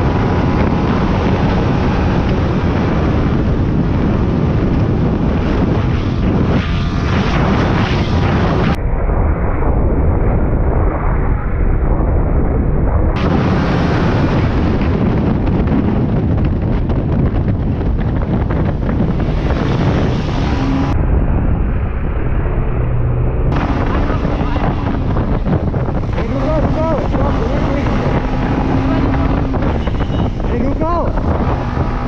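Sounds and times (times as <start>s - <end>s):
motorcycle engine and road noise: 0.0s - 32.0s
wind buffeting microphone: 0.0s - 32.0s.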